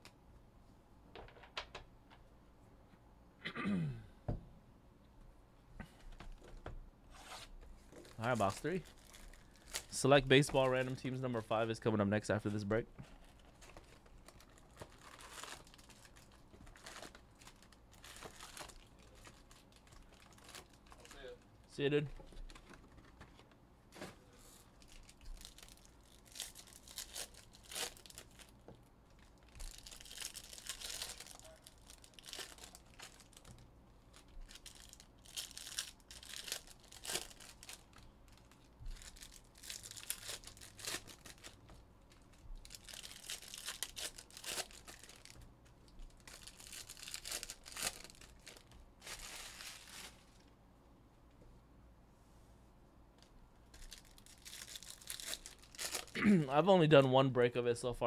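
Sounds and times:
foil wrappers tearing and crinkling: 0:08.0 - 0:10.8, 0:13.2 - 0:21.4, 0:24.8 - 0:45.4, 0:46.0 - 0:50.4, 0:53.7 - 0:56.2.

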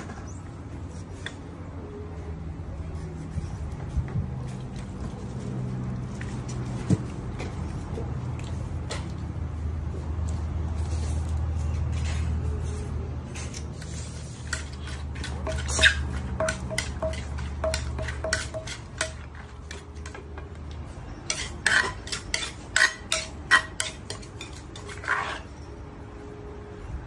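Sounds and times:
pestle knocking in mortar: 0:15.2 - 0:19.8.

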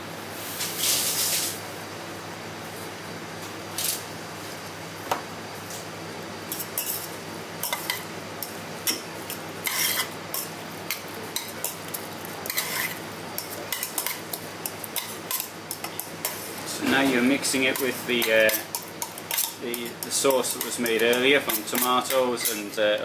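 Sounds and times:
steady background hum: 0:00.0 - 0:23.0
metal spoon scraping metal bowl: 0:09.6 - 0:11.8, 0:12.4 - 0:14.2, 0:15.0 - 0:22.7.

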